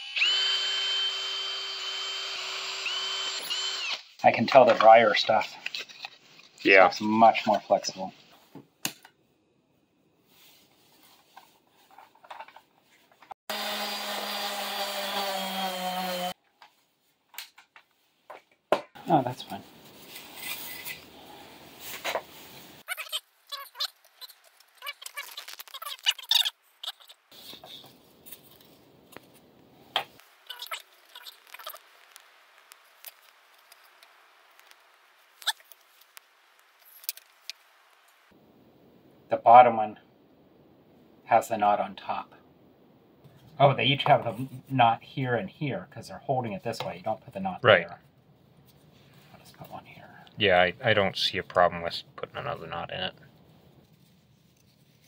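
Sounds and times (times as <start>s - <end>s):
orbital sander buzzing: 0.0s - 4.1s, 13.5s - 16.4s.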